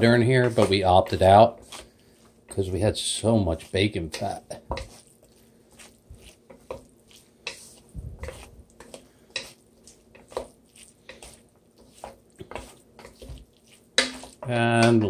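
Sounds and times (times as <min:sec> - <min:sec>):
utensil knocking against a wok: 0:14.0 - 0:15.0.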